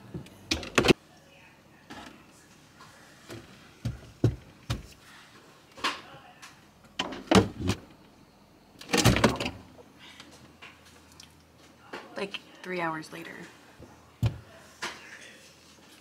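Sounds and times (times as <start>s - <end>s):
refrigerator shelves knocks and clunks: 3.3s - 4.9s, 7.0s - 7.9s, 8.9s - 9.7s, 14.2s - 14.5s
refrigerator door shutting: 7.0s - 7.9s, 8.8s - 9.6s.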